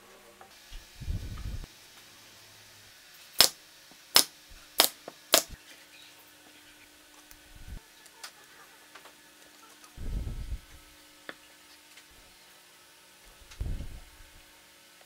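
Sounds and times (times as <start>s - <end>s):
nail gun firing: 3.4s - 5.6s.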